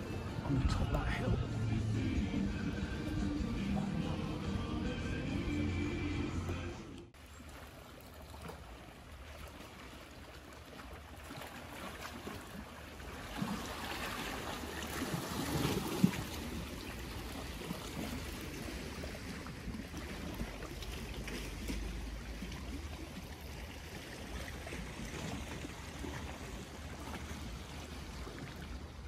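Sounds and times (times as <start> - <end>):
steady low rumble: 0.0 - 7.2
waves lapping against rocks: 0.0 - 29.0.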